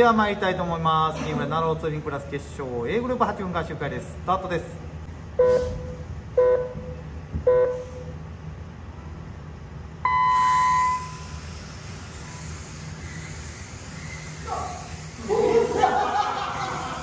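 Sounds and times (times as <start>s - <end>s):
electronic start beeps: 5.4s - 8.1s, 10.1s - 11.3s
long high beep: 5.4s - 8.2s, 10.0s - 11.4s
electric toy car motors whirring: 11.0s - 15.3s.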